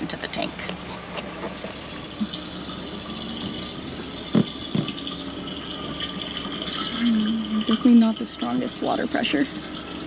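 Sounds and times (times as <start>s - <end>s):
water pouring from hose into tank: 1.5s - 10.0s
dull knocks: 4.3s - 5.0s.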